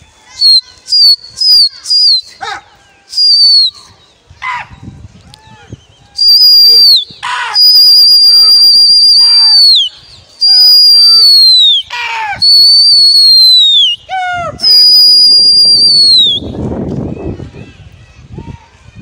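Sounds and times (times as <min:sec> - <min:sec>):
loud piercing whistling: 0:00.4 - 0:02.4, 0:03.1 - 0:03.9, 0:06.0 - 0:16.6
short falling whistle chirps: 0:03.1 - 0:03.8, 0:15.0 - 0:16.6.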